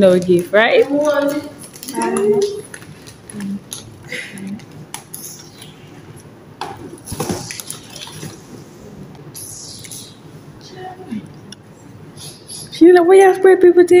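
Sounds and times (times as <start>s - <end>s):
paper gift bag rustling: 1.1s - 5.7s.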